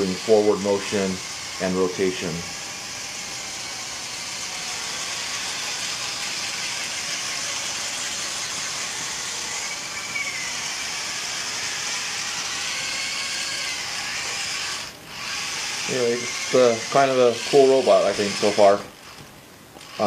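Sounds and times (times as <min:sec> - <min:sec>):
small electric motors whining: 0:00.0 - 0:20.0.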